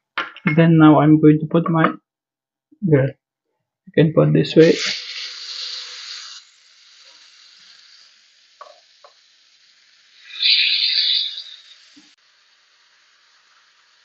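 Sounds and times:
skewers sizzling on a grill: 4.6s - 14.0s.

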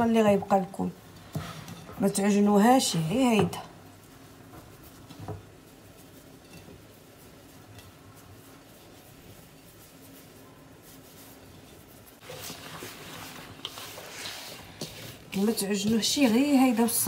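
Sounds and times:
hands rubbing grains in a bowl: 2.7s - 17.0s.

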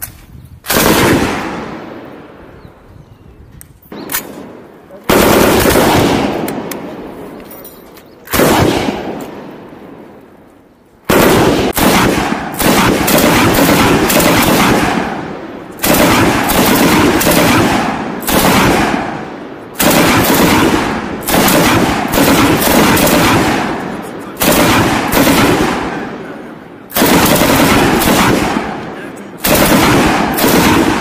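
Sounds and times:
machine gun firing bursts: 0.7s - 1.7s, 5.1s - 6.6s, 8.3s - 9.1s, 11.1s - 19.2s, 19.8s - 26.2s, 26.9s - 31.0s.

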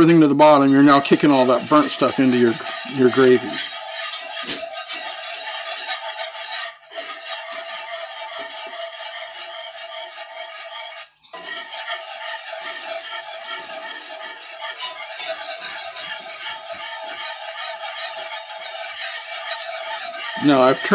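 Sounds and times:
whisk scraping a skillet: 0.0s - 20.9s.

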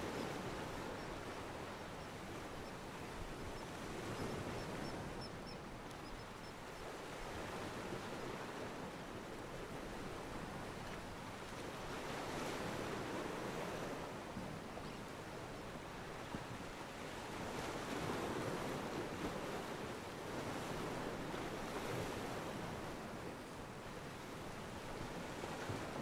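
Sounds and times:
ocean waves washing against pier: 15.9s - 26.0s.

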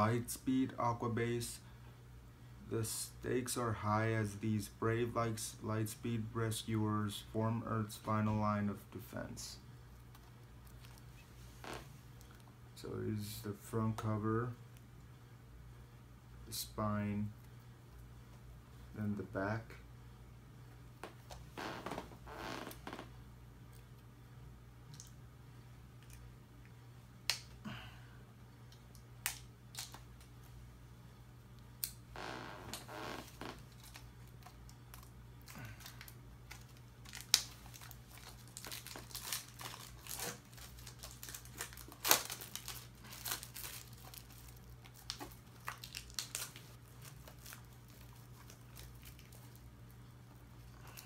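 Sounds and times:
plastic wrap crinkling and tearing: 32.7s - 49.7s.

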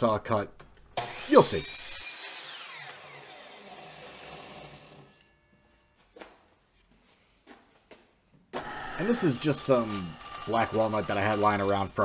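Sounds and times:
power saw motor winding down: 1.0s - 5.4s, 8.6s - 12.0s.

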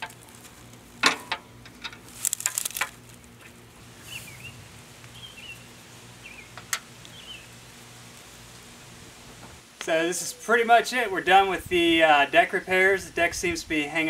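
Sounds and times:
bird chirps: 4.0s - 7.5s.

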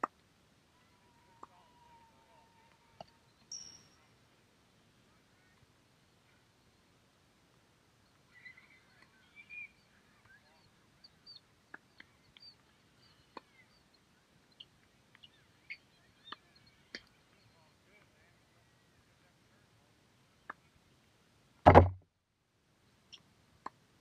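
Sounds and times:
faint bird calls: 8.0s - 18.3s.

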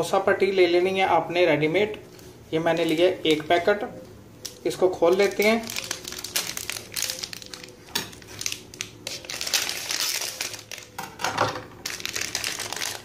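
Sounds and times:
plastic packaging crinkling: 4.4s - 13.0s.

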